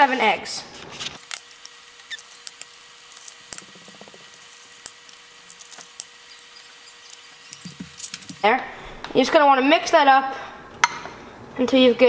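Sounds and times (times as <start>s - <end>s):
eggshells cracking: 1.2s - 8.4s.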